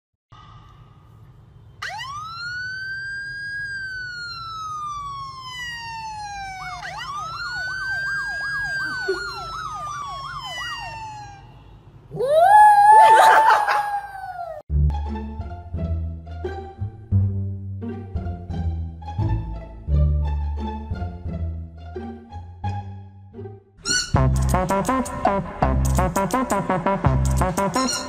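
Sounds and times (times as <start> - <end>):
siren through phone speaker: 1.8 - 11.6
dog howling: 12.1 - 14.6.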